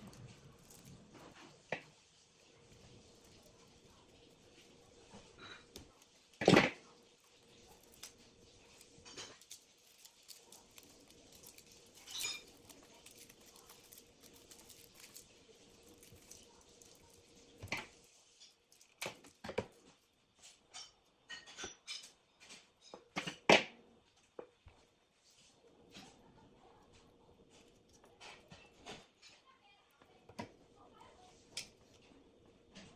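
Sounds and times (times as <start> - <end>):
wires clicking being twisted: 0.0 - 1.2, 2.7 - 21.0.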